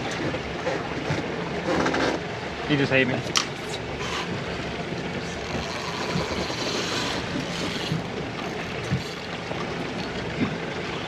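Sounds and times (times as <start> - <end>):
water slapping against hull: 0.0 - 11.0.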